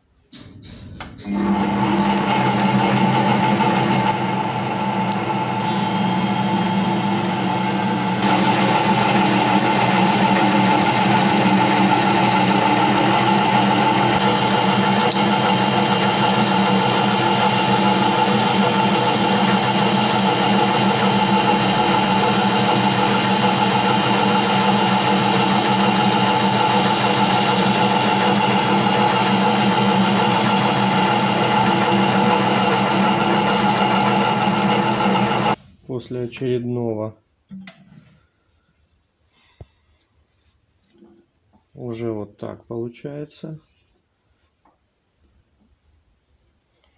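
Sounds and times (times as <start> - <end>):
lathe motor and gear whine: 1.2 - 35.6.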